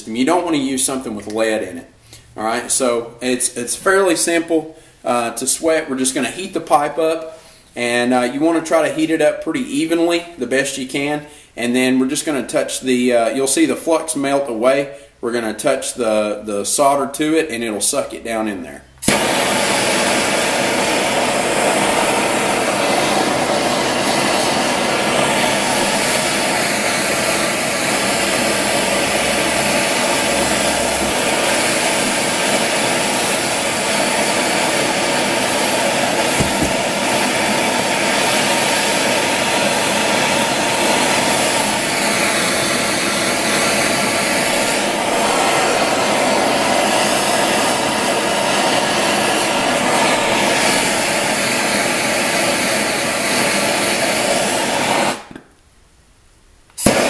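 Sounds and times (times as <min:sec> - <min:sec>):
gas torch hissing: 0:19.0 - 0:55.4, 0:56.8 - 0:57.0.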